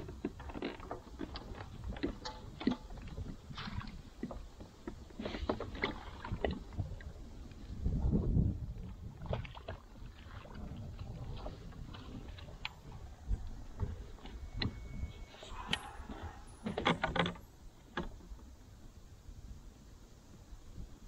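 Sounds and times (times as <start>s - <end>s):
fishing gear clicks and knocks: 0.0s - 7.6s, 11.4s - 18.5s
faint wind: 0.0s - 21.0s
water: 0.0s - 21.0s.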